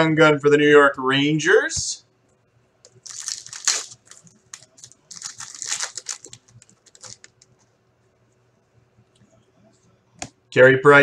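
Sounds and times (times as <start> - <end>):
foil wrapper crinkling and tearing: 2.9 - 7.5.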